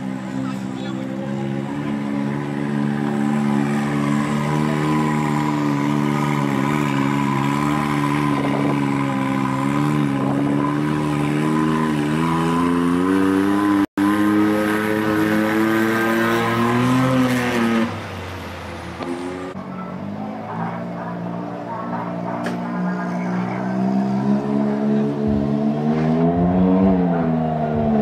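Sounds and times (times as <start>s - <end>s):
buggy engine at low revs: 0.0s - 28.0s.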